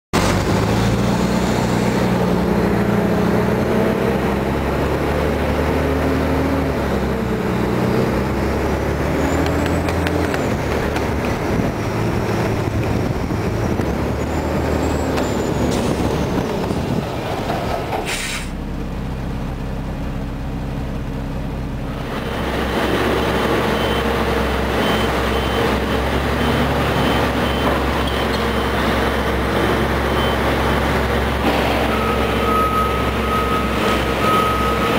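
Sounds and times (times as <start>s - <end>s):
garbage truck engine running: 0.2s - 34.9s
backup alarm beeping: 31.8s - 34.9s.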